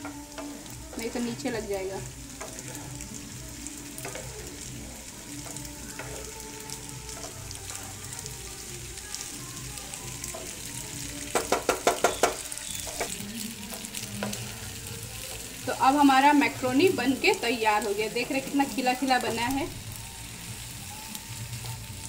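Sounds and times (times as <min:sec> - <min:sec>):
wooden spatula stirring and scraping: 0:00.0 - 0:09.3
food sizzling in frying pan: 0:00.0 - 0:22.0
spatula knocking against pan: 0:11.3 - 0:13.2.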